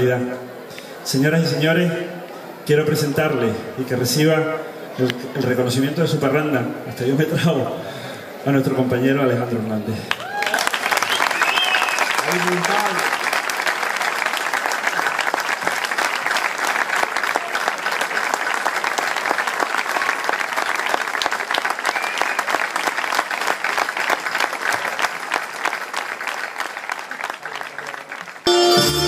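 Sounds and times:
audience clapping: 10.1 - 29.0
band playing: 28.4 - 29.0.

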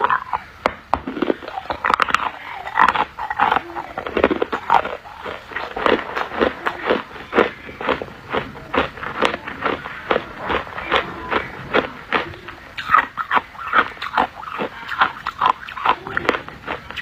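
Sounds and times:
ice crunching between teeth: 0.0 - 17.0.

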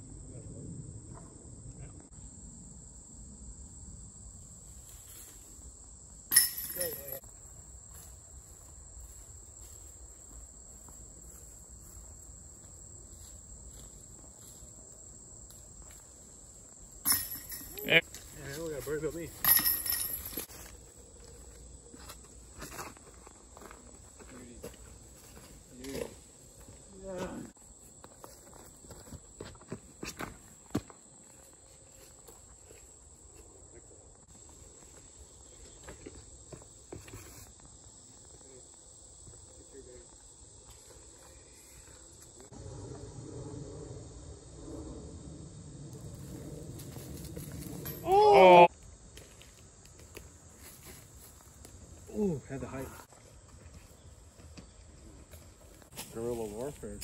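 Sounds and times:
insects chorus pulsing: 0.0 - 57.0
faint low rumble: 42.5 - 47.8.

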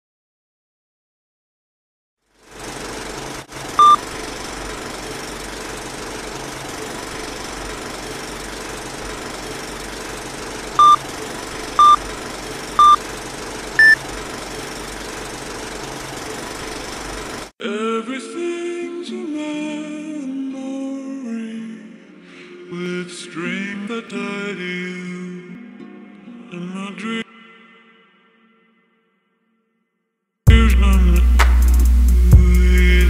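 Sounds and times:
projector clatter and hiss: 2.4 - 17.5
short beeps: 3.8 - 4.0, 10.8 - 11.0, 11.8 - 12.0, 12.8 - 13.0, 13.8 - 14.0.

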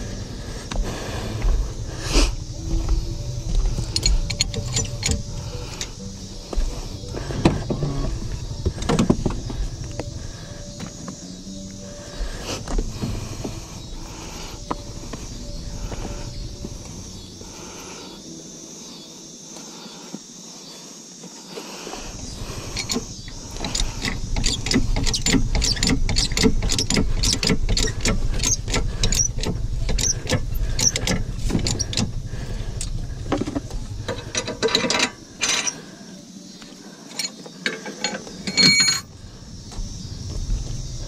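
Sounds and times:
metallic clicks and clanks: 3.4 - 6.0, 22.7 - 32.2, 32.8 - 35.8.

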